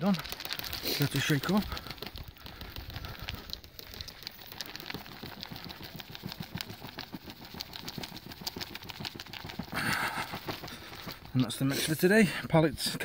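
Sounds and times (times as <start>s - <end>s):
bait tub rattling: 0.0s - 12.3s.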